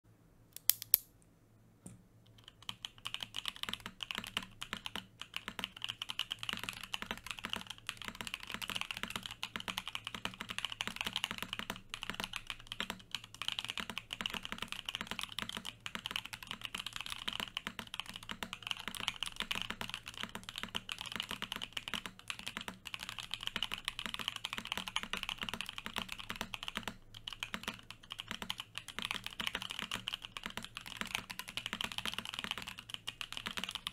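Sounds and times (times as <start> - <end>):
sharp click: 0.6 - 1.2
mechanical keyboard typing: 2.3 - 33.9.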